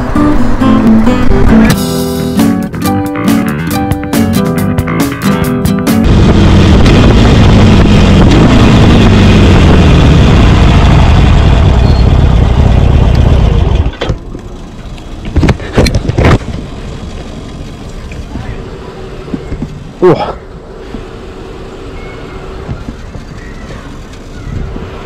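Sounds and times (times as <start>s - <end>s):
guitar music: 0.0s - 9.4s
motorcycle engine at speed: 6.0s - 25.0s.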